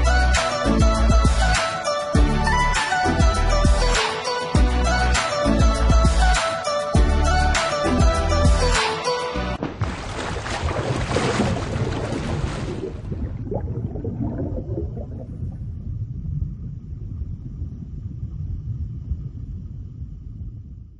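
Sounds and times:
water splashing and bubbling: 9.6 - 20.7
low underwater rumble: 9.6 - 20.9.

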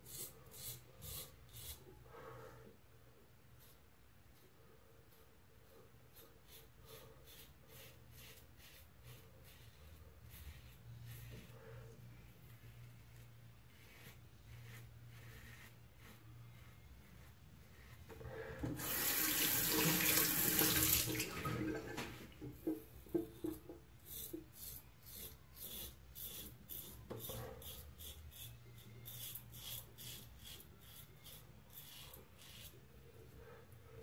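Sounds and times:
razor rasping through stubble: 6.1 - 11.6, 12.6 - 18.1, 24.0 - 32.8
water tap running: 18.8 - 22.0.

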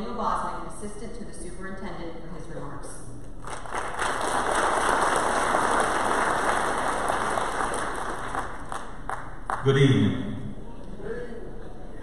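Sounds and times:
audience applauding: 3.4 - 9.8.

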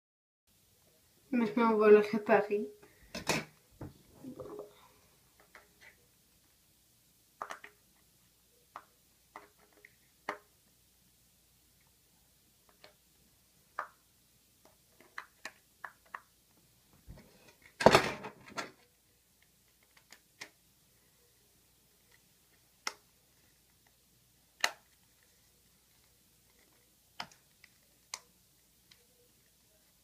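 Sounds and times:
small clicks and taps on phone: 7.4 - 7.8, 14.6 - 16.3.

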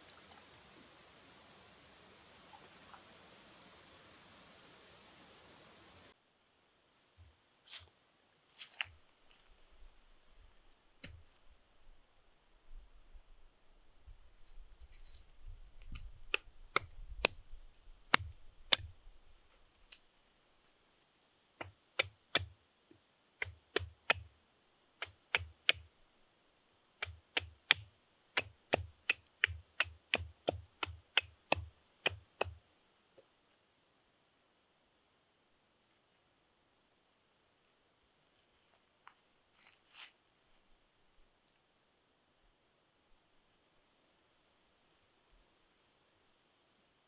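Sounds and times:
wooden knocks striking branch: 27.0 - 32.6.

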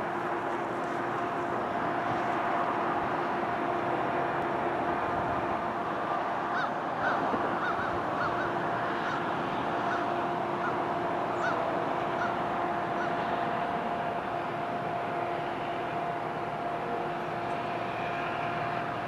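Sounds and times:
distant freight train hum: 0.0 - 19.0
geese honking: 6.5 - 14.3.

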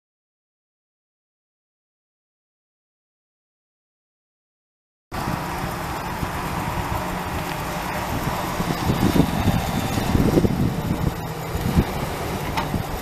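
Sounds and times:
pickup truck engine running: 5.1 - 13.0.

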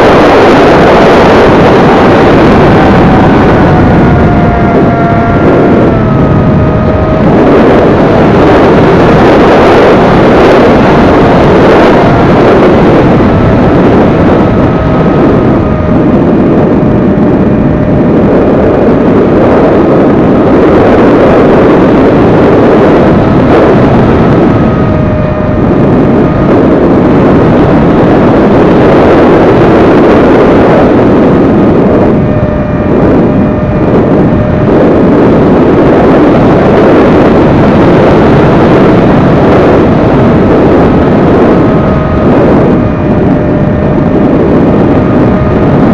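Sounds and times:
electric motor whine: 0.0 - 45.9
wind buffeting microphone: 0.0 - 45.9.

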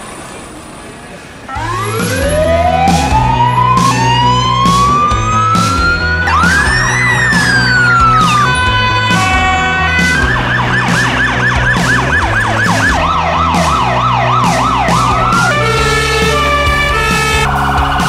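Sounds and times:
lower-pitched second siren: 1.5 - 17.5
siren yelping: 1.5 - 17.6
steady stepped siren tones: 1.5 - 18.0.

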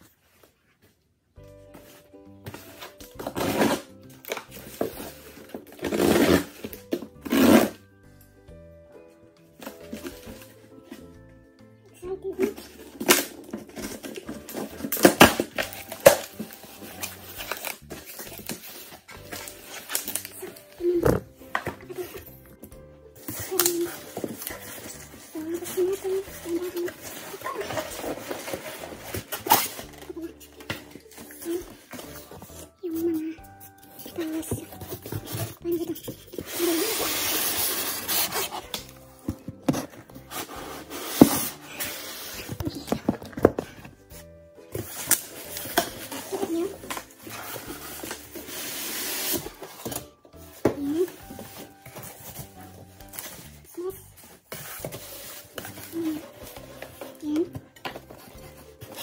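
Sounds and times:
polystyrene foam squeaking: 2.6 - 7.8, 12.6 - 22.5, 23.3 - 39.4, 44.8 - 50.1
cardboard box being opened: 23.3 - 30.1.

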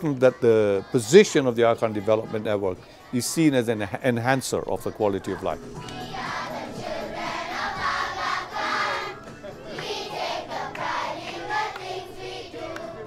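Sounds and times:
children singing together: 4.9 - 13.0.

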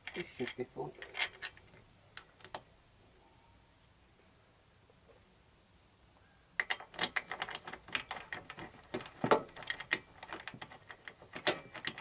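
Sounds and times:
metal spacers clicking and knocking: 0.0 - 2.6, 6.6 - 12.0.

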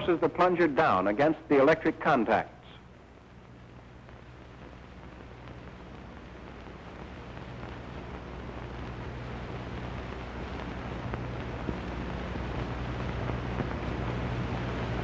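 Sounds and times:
film soundtrack hum and hiss: 0.0 - 15.0.

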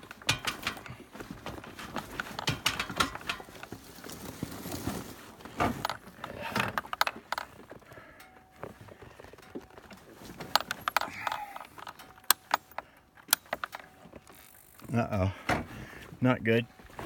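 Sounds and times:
clicks and rattles of controls: 0.0 - 4.0, 5.5 - 14.6.

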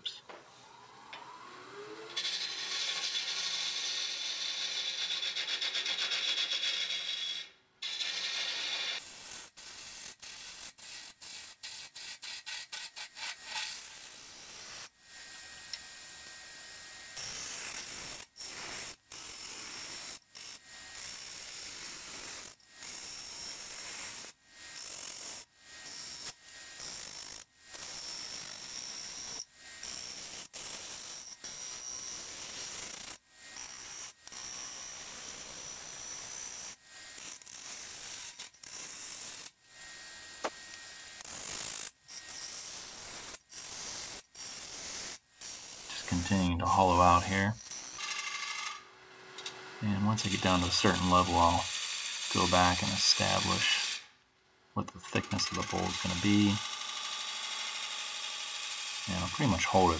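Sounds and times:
lathe gouge scraping wood: 50.2 - 54.1, 55.1 - 57.8.

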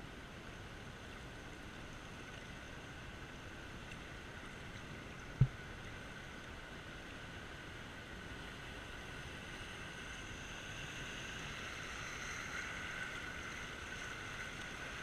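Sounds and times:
sharp low thump: 5.4 - 5.6.

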